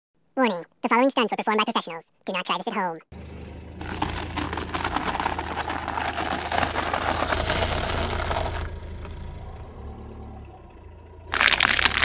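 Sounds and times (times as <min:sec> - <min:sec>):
low car engine hum: 0:03.1 - 0:12.0
dry noodles crunching under tyre: 0:03.8 - 0:09.2, 0:11.3 - 0:12.0.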